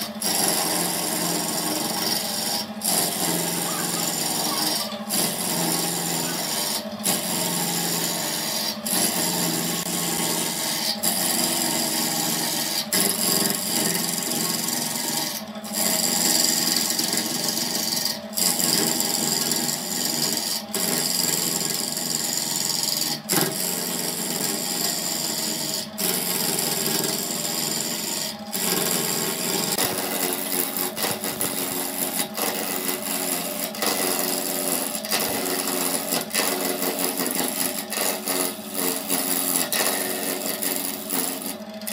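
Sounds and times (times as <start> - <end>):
lathe tool scraping wood: 0.0 - 41.9.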